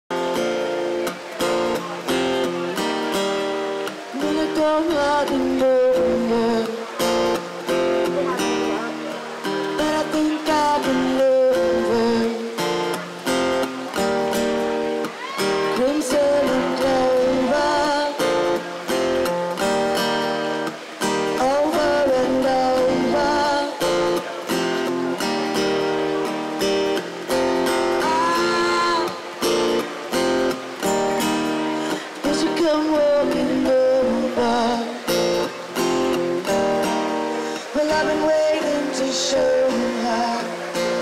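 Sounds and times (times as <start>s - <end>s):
strummed acoustic guitar: 0.1s - 41.0s
woman singing: 4.1s - 7.0s, 9.8s - 12.5s, 15.2s - 18.4s, 21.4s - 24.0s, 28.0s - 29.3s, 32.1s - 35.0s, 37.6s - 40.7s.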